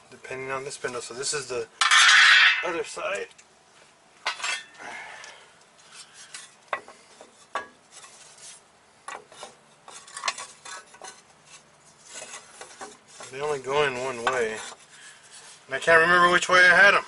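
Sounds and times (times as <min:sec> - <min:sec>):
metal parts scraping: 0:04.3 - 0:04.8, 0:09.3 - 0:15.6.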